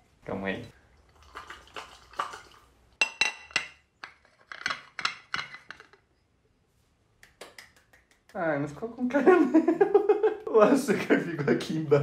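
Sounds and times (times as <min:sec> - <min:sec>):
glass mug clinking on ceramic plate: 0:03.0 - 0:03.8.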